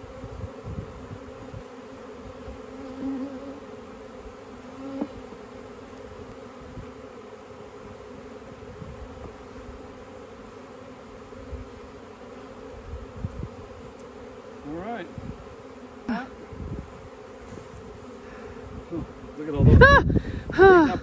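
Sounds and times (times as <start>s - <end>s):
bee swarm buzzing: 0.0s - 21.0s
single bee flying past: 0.0s - 21.0s.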